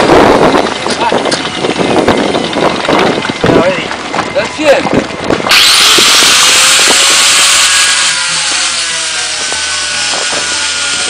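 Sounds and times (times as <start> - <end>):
power tool high hiss: 5.5 - 11.0.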